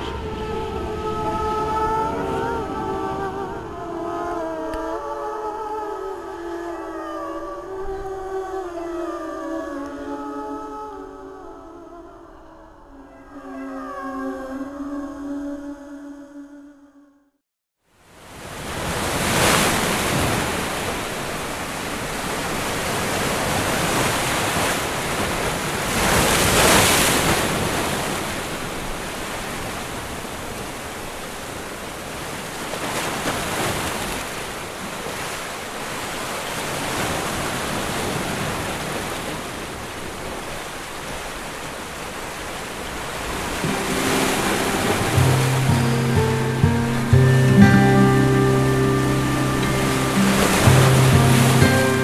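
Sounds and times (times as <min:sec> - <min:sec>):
music: 0:03.2 - 0:16.1, 0:43.6 - 0:52.0
waves washing over rocks: 0:18.2 - 0:52.0.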